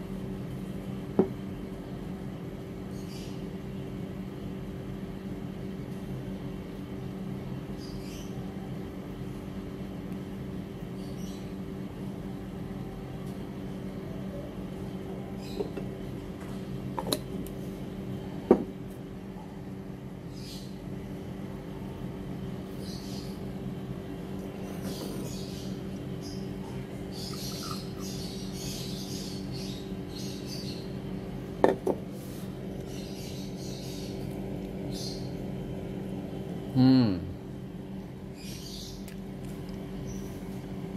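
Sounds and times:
low machine hum: 0:00.0 - 0:40.9
high chirping: 0:24.8 - 0:31.0.

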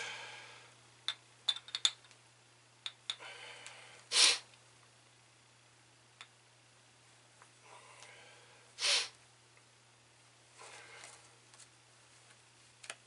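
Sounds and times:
loud breath through the nose: 0:03.2 - 0:04.5, 0:08.1 - 0:09.2.

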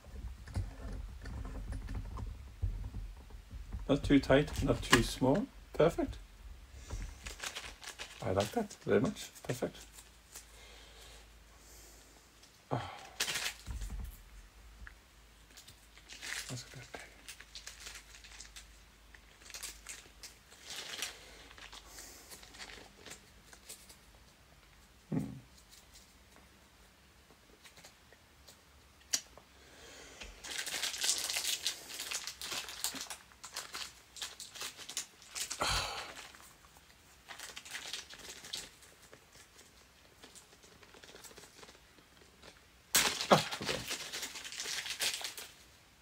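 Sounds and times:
plastic packaging crinkling: 0:03.9 - 0:06.2, 0:06.8 - 0:10.5, 0:12.7 - 0:14.2, 0:15.4 - 0:24.3, 0:30.4 - 0:45.7.

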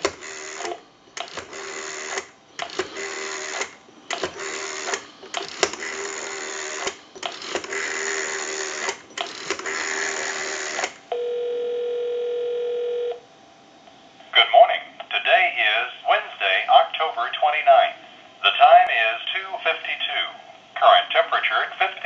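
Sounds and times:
rotary dial pulses clicking: 0:00.0 - 0:11.1
telephone ringback tone: 0:10.0 - 0:13.2.

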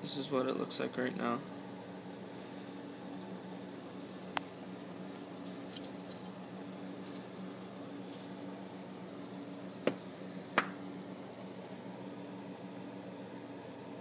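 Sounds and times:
light metallic jingle: 0:05.6 - 0:06.4.

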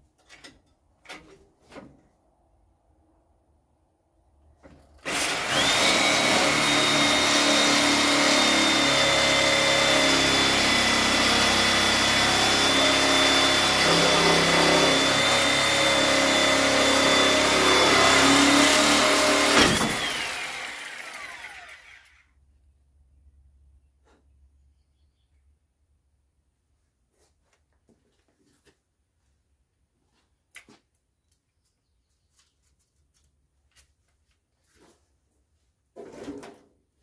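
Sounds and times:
electric grinder whining: 0:05.0 - 0:22.3.

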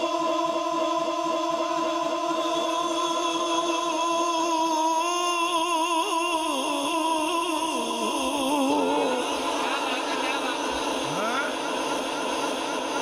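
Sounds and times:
person singing a long note: 0:00.0 - 0:10.2.

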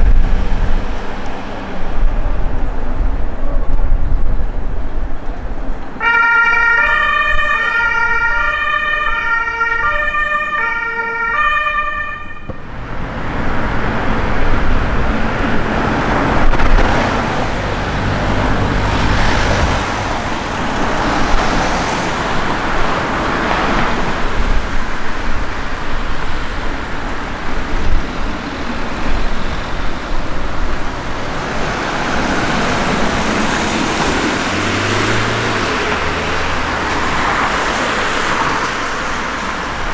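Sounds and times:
road noise: 0:00.0 - 0:39.9
two-tone siren: 0:06.0 - 0:12.6
vehicle engine: 0:12.4 - 0:39.9.

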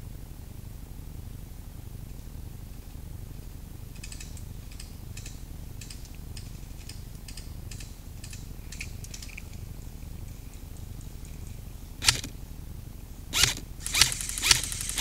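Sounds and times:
low steady rumble: 0:00.0 - 0:15.0
airsoft gun firing clicks: 0:12.0 - 0:12.4, 0:13.4 - 0:15.0.

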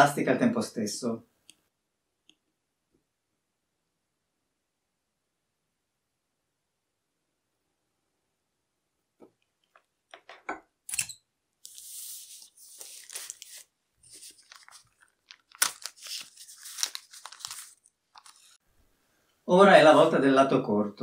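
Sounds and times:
plastic film and paper crinkling: 0:11.7 - 0:18.6.

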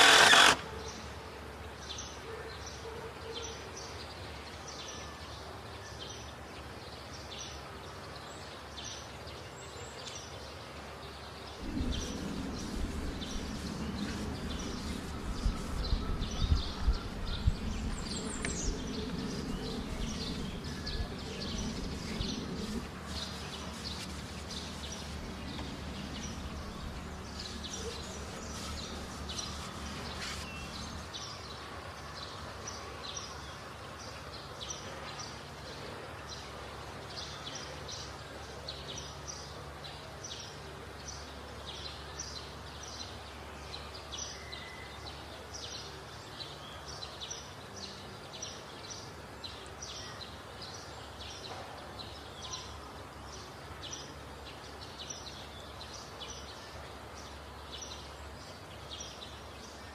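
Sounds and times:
low rumbling noise: 0:11.5 - 0:32.0
bird chirping: 0:11.6 - 0:33.5.

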